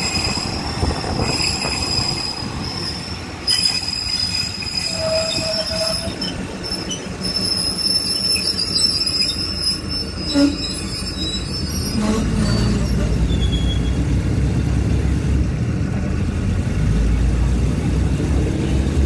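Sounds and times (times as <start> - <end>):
train wheels squealing on rails: 0.0 - 14.2
train rumbling: 0.0 - 19.0.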